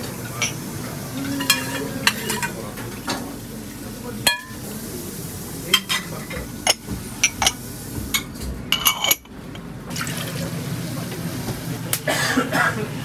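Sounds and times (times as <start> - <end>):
clinking cups and utensils: 0.2 - 0.6, 1.2 - 3.3, 4.2 - 4.6, 5.7 - 9.3.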